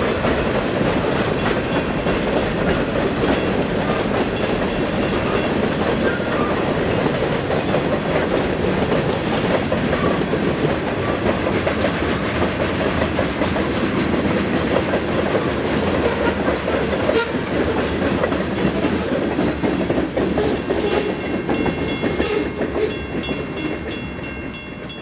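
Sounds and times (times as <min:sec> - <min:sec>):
freight train rolling past: 0:00.0 - 0:25.0
steel wheels clacking over rail joints: 0:00.0 - 0:25.0
regular ringing beat: 0:20.5 - 0:25.0.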